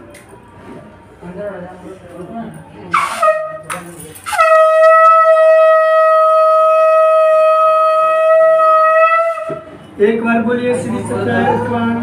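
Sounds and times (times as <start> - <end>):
conch shell blown: 2.9 - 9.8.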